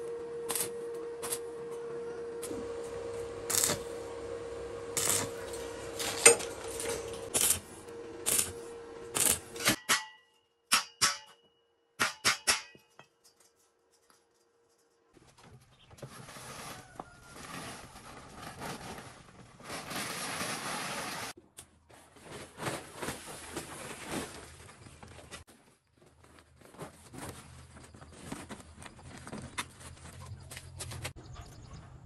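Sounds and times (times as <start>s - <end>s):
plastic tarpaulin rustling: 15.2s - 31.2s.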